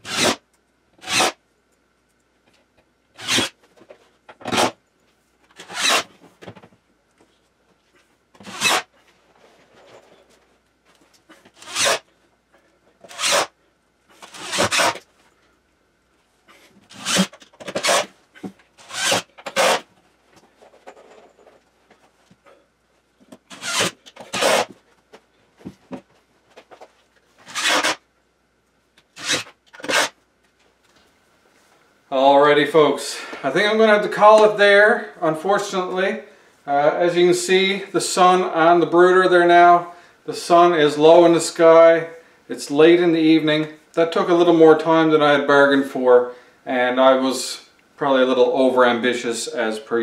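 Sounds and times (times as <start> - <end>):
drill driving screws into wood: 0.0 - 0.4, 1.0 - 1.4, 3.2 - 3.6, 4.4 - 4.8, 5.6 - 6.1, 8.4 - 8.9, 11.6 - 12.0, 13.0 - 13.5, 14.2 - 15.0, 16.9 - 18.1, 18.8 - 19.9, 23.5 - 24.7, 27.4 - 28.0, 29.2 - 30.1.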